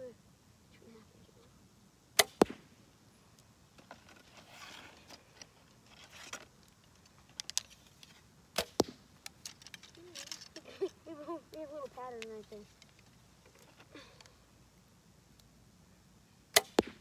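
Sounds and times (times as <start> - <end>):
arrow hitting target: 2.2 - 2.7, 8.6 - 9.1, 16.5 - 17.0
rustles and clicks handling bow: 3.3 - 14.4.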